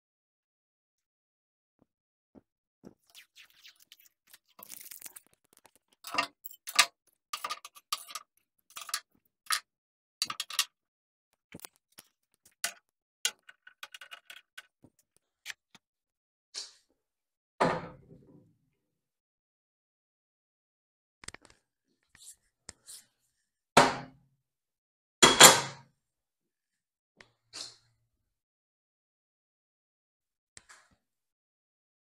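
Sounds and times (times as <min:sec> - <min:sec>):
metal tools clicking and clanking: 0:06.0 - 0:09.6.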